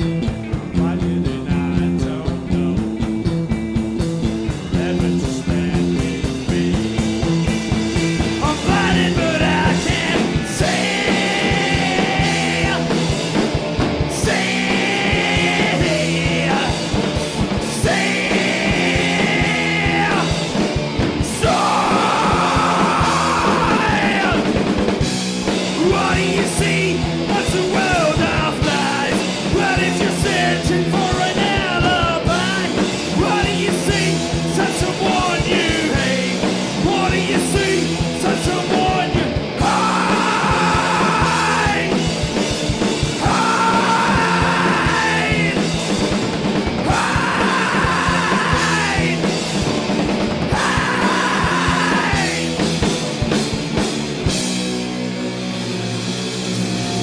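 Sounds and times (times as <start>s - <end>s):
punk rock band playing live: 0.0s - 57.0s
shouted singing: 8.4s - 13.2s, 14.1s - 16.9s, 17.6s - 20.4s, 21.2s - 24.6s, 25.8s - 42.0s, 43.2s - 45.7s, 46.8s - 49.3s, 50.4s - 52.6s.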